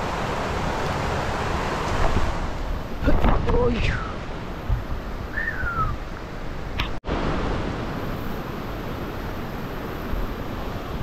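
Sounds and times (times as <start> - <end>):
river rushing over boulders: 0.0 - 11.0
short falling whistle: 5.3 - 6.0.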